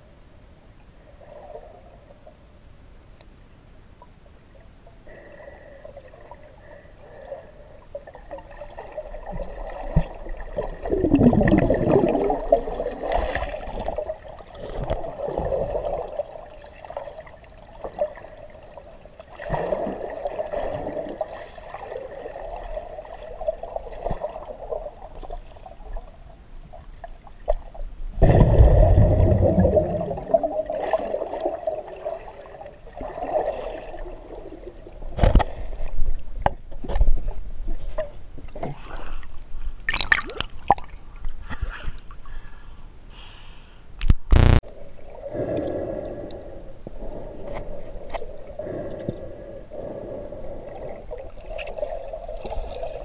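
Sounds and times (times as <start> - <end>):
underwater gurgling rush of water: 8.0 - 26.1, 27.0 - 36.2, 44.4 - 53.0.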